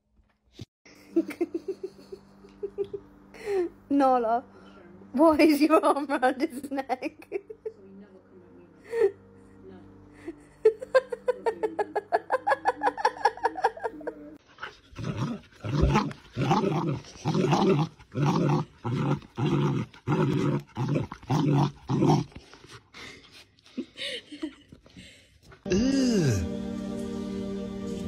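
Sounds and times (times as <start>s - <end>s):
puppy play growls: 14.5s - 23.4s.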